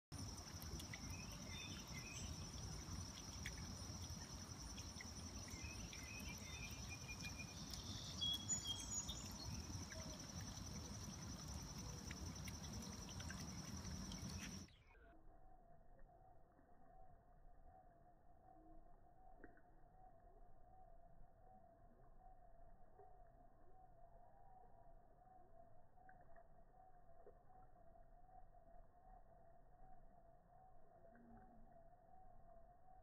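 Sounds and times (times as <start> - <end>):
high-pitched insect trill: 0.2 - 14.7
bird chirps: 0.4 - 14.7.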